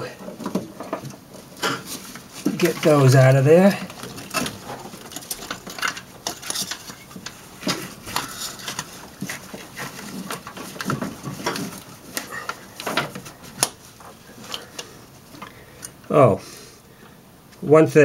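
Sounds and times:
plastic and wire rubbing: 0.0s - 15.6s.

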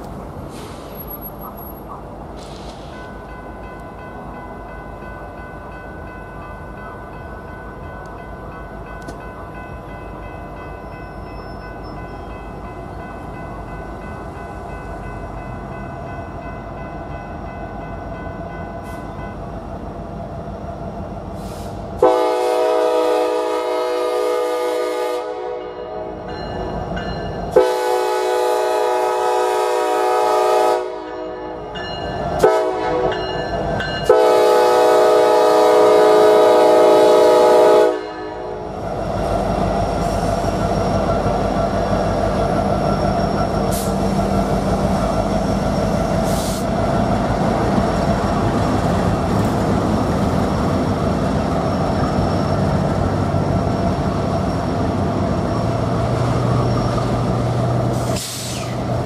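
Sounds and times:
locomotive air horn blasts: 21.4s - 26.1s, 27.5s - 31.4s, 32.4s - 33.2s, 34.0s - 38.6s
electronic crossing bell ringing: 26.3s - 27.5s, 31.2s - 32.4s.

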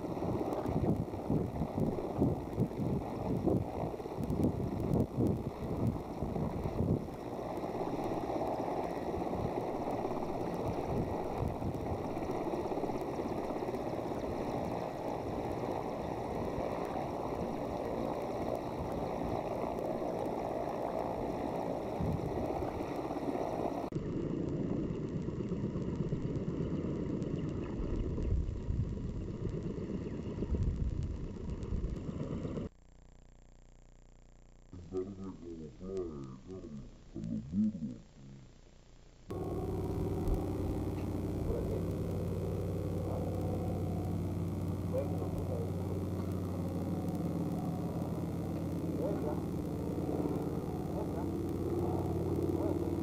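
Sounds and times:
rotor wash buffeting microphone: 0.0s - 23.9s, 39.3s - 53.0s
helicopter rotors running: 0.0s - 26.6s, 39.3s - 53.0s.

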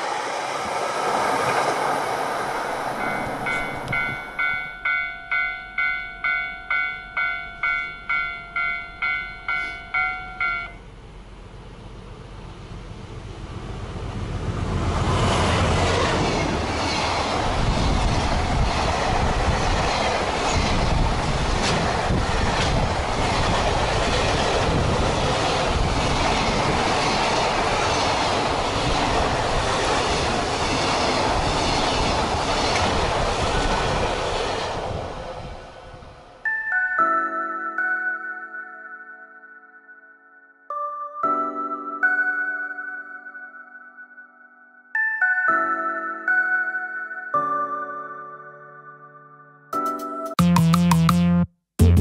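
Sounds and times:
freight train passing: 0.0s - 37.9s
wheels clacking over rail joints: 0.6s - 10.8s.

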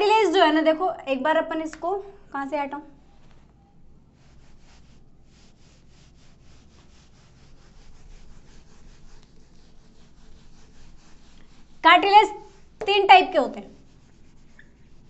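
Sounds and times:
eraser wiping whiteboard: 4.1s - 15.0s.

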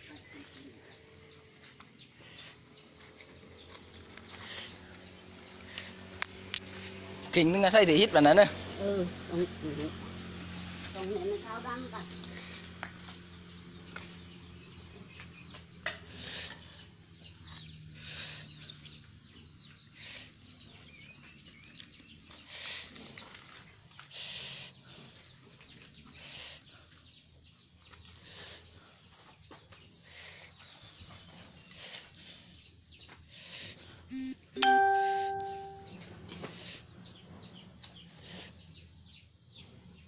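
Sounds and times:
high-pitched hum: 34.1s - 36.0s.

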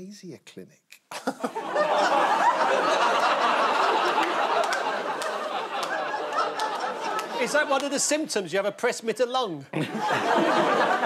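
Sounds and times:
audience laughing: 1.1s - 8.4s, 9.8s - 11.0s.

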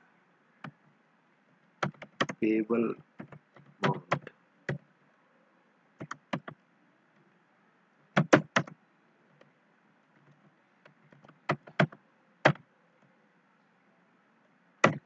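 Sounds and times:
computer keyboard typing: 1.8s - 2.4s, 3.0s - 4.8s, 6.0s - 6.6s, 8.2s - 8.8s, 11.1s - 12.6s.

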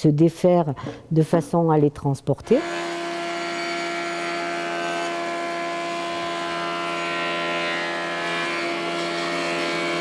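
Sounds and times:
band saw cutting wood: 2.5s - 10.0s.

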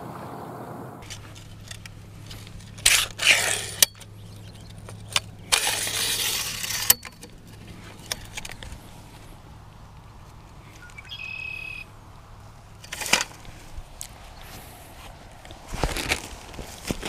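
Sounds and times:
noisy scrape: 0.0s - 9.3s.

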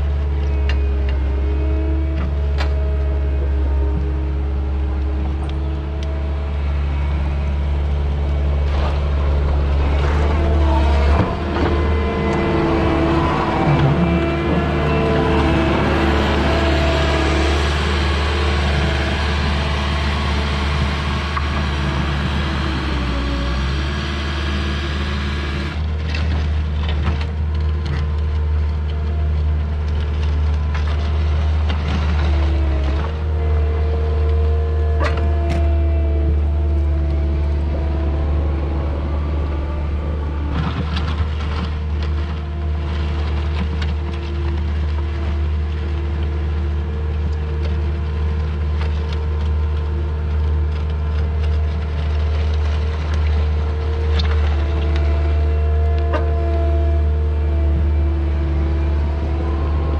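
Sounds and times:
diesel engine running under load: 0.0s - 59.9s
hydraulic whine: 0.4s - 25.9s.

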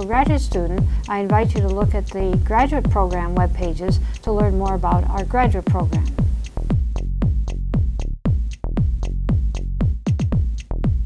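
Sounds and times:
electronic music with kick drum: 0.0s - 11.0s.

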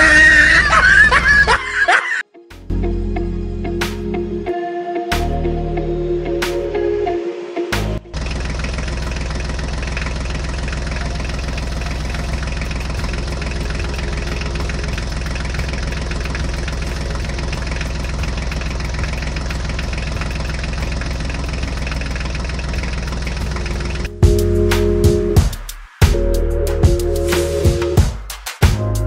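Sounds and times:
diesel tractor engine idling: 8.1s - 24.1s.

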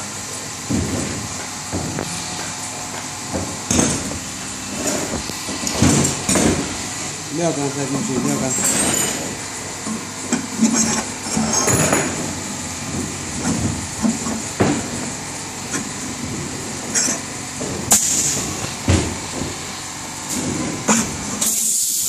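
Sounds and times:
steel parts knocking and clinking: 8.2s - 9.4s.

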